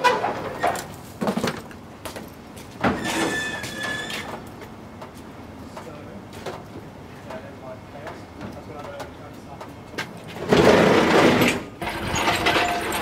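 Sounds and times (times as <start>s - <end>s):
metal roller door rattling: 10.3s - 13.0s.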